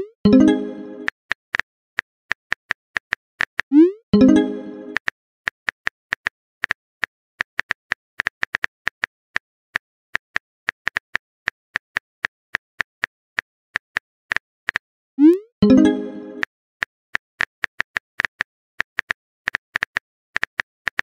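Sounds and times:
phone keyboard typing clicks: 3.0s - 5.2s.

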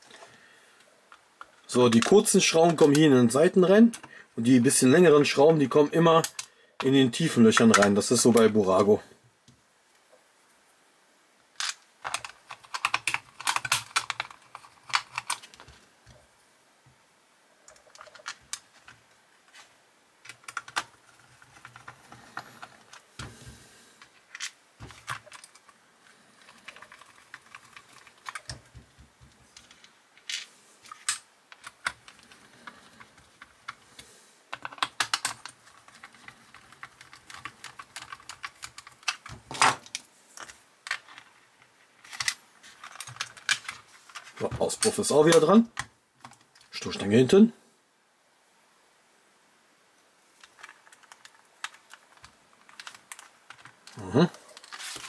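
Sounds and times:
clicks and taps of small parts: 11.6s - 15.8s, 26.6s - 41.3s.

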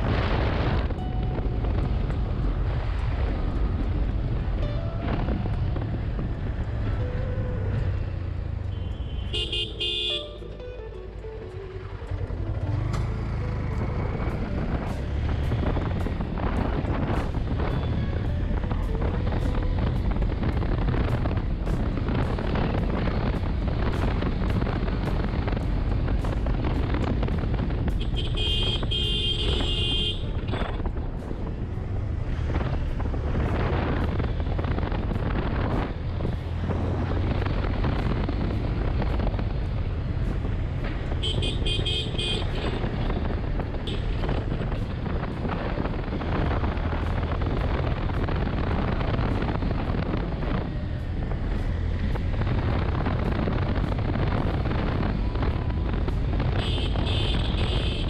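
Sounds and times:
wind rushing over microphone: 0.0s - 8.7s, 11.9s - 58.0s
horn sounding: 8.7s - 10.6s.

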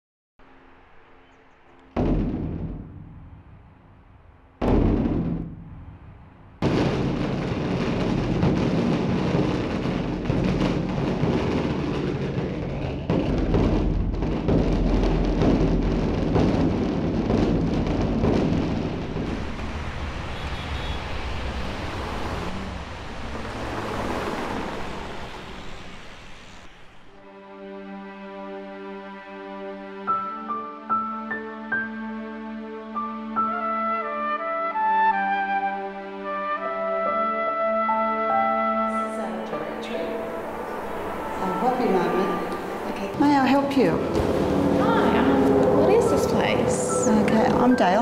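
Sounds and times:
heavy drum strikes: 2.0s - 4.0s, 4.6s - 20.0s, 40.3s - 48.0s
fast drum roll: 6.6s - 20.2s.

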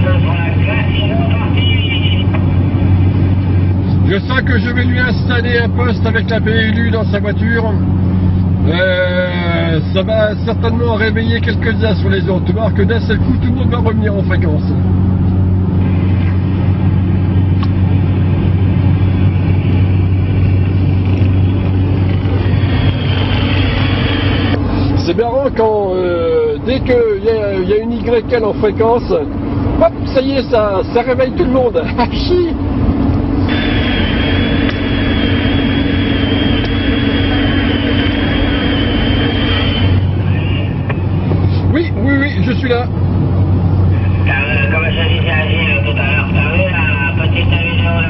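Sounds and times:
car engine and road drone: 0.0s - 48.0s
radio static hiss with whistle: 33.5s - 40.8s.

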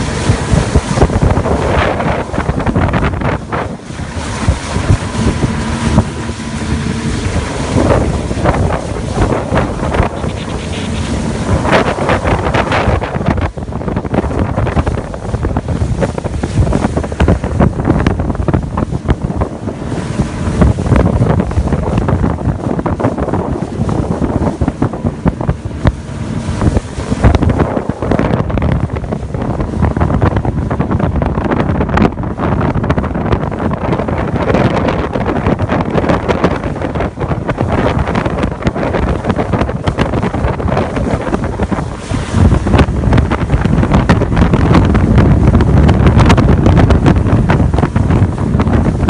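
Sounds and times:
boat engine running: 0.0s - 49.0s
hull slapping through waves: 0.0s - 49.0s
wind buffeting microphone: 0.0s - 49.0s.

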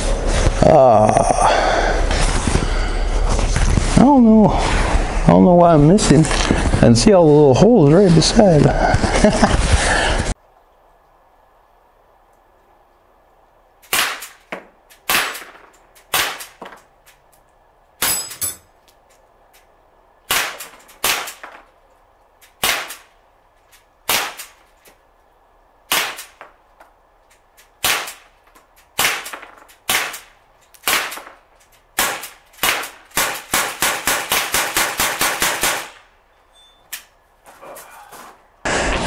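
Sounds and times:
air pistol shots: 13.9s - 14.4s, 15.0s - 16.6s, 20.3s - 21.5s, 22.6s - 23.1s, 24.1s - 24.6s, 25.9s - 26.4s, 27.8s - 28.3s, 29.0s - 31.4s, 32.0s - 36.1s.

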